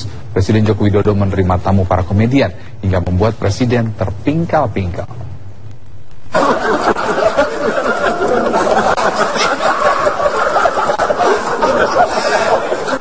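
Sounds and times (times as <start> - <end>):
group of people laughing: 6.3 - 13.0.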